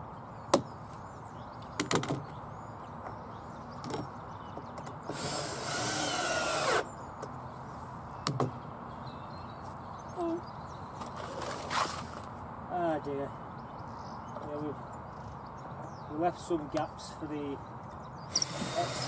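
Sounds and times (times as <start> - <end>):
sharp clicks and knocks: 1.7 - 2.3
cordless drill driving screw: 5.1 - 6.9, 18.3 - 19.0.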